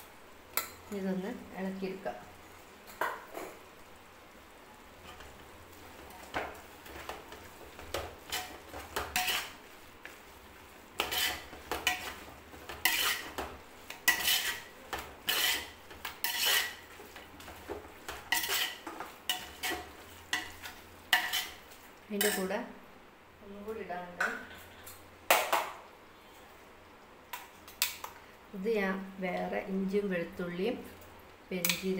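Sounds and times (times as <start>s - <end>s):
ladle scraping inside metal pot: 8.3s - 9.6s, 11.0s - 21.6s.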